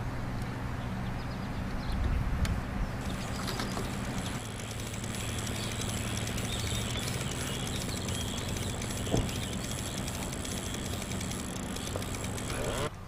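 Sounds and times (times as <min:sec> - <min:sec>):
low hum: 0:02.8 - 0:13.0.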